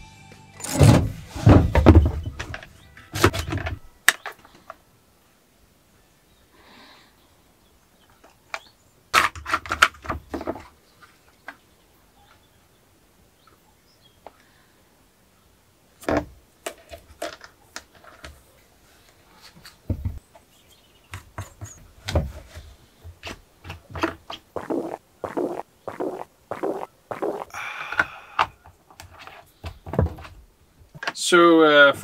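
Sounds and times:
plastic parts clicking and knocking: 0:08.2 - 0:10.7, 0:16.0 - 0:18.4.

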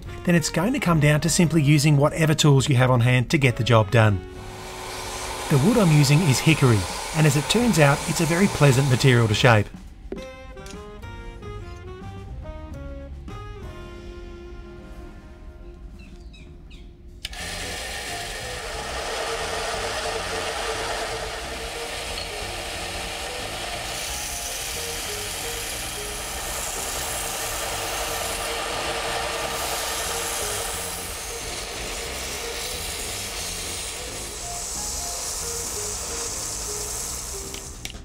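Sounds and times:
belt sander on wood: 0:04.3 - 0:09.8, 0:17.3 - 0:38.0.

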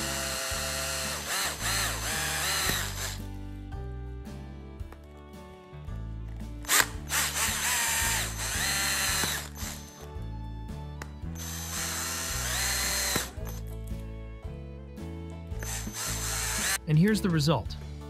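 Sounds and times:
cordless drill boring through plastic: 0:00.0 - 0:03.2, 0:06.6 - 0:10.1, 0:11.3 - 0:13.6, 0:15.6 - 0:16.8
background music: 0:00.0 - 0:18.0.

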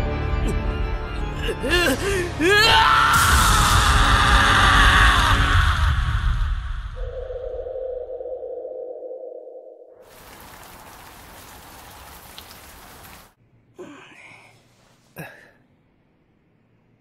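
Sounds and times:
heavy rain hiss: 0:10.0 - 0:13.4.

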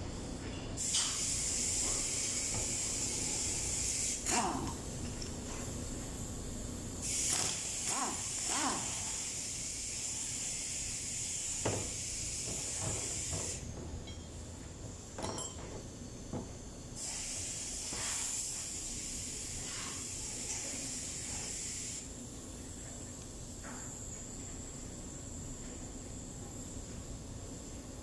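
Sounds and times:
compressed air hissing: 0:00.8 - 0:13.7, 0:16.9 - 0:22.1.

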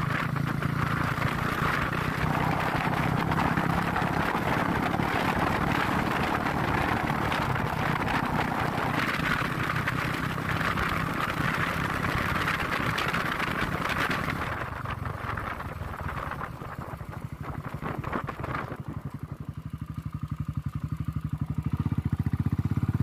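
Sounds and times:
motorcycle engine running: 0:00.0 - 0:23.0
road noise: 0:00.0 - 0:23.0.

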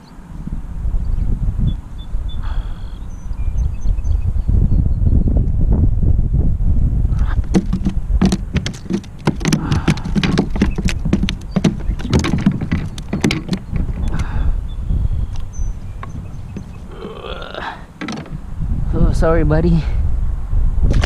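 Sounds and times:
wind rumble on microphone: 0:00.0 - 0:21.0
taps and knocks on plastic kayak: 0:07.2 - 0:14.3, 0:18.0 - 0:18.4.

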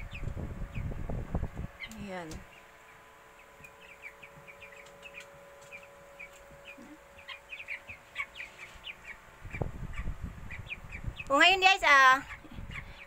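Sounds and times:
chicks peeping: 0:00.0 - 0:13.0.

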